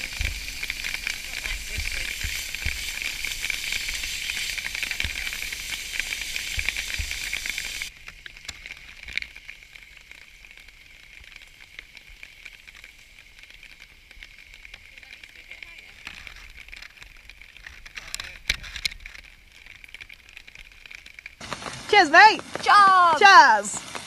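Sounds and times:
steak sizzling in a pan: 0.0s - 24.0s.

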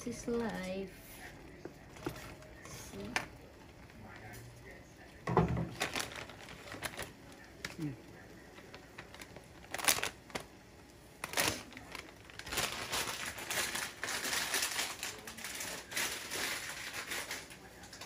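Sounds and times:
water boiling and bubbling: 0.0s - 18.0s.

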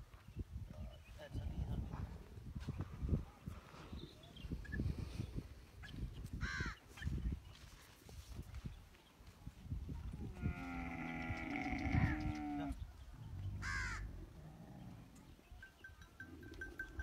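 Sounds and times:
camel calling: 10.3s - 12.8s.

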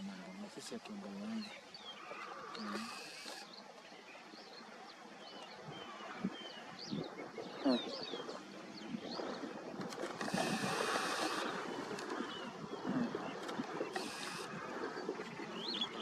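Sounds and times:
faint outdoor hiss: 0.0s - 16.0s
lower bird call: 10.2s - 14.9s.

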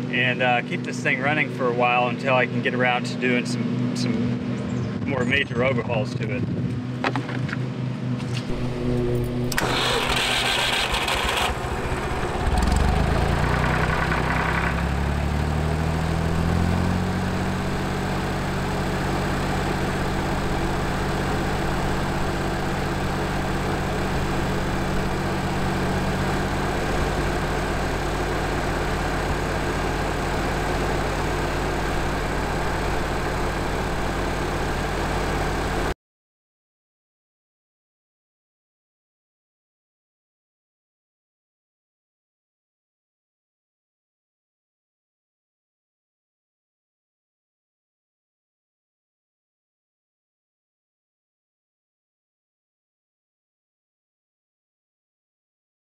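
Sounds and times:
tractor engine running: 6.8s - 35.9s
starter motor cranking: 8.5s - 14.9s.

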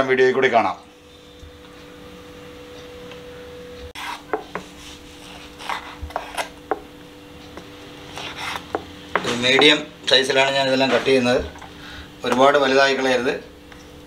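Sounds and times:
steady low hum: 0.0s - 14.0s
knife scraping strokes: 4.0s - 6.6s, 8.1s - 8.8s.

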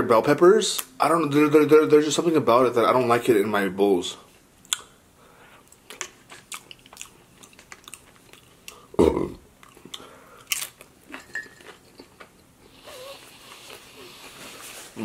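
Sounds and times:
close-miked chewing: 5.6s - 8.9s, 9.6s - 14.4s.

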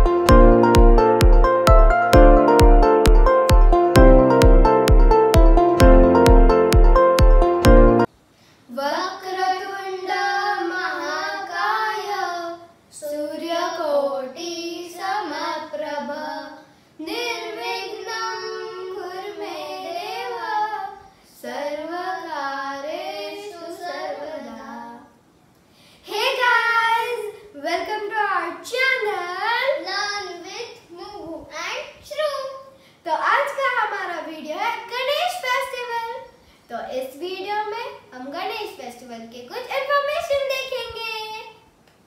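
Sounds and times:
child singing unaccompanied: 8.7s - 25.2s, 26.1s - 36.4s.

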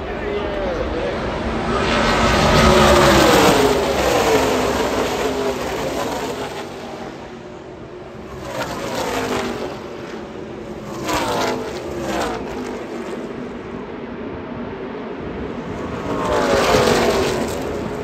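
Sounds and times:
race truck engines passing: 0.0s - 18.0s.

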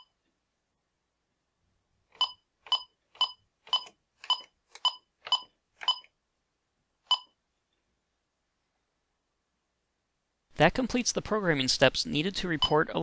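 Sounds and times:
keypad beeps: 2.2s - 6.2s, 7.1s - 7.4s.

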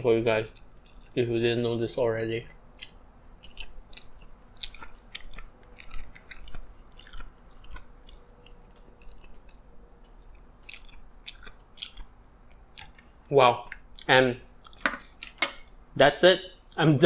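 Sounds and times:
chewing salad: 0.1s - 16.0s
wet mouth clicks: 2.4s - 15.4s.

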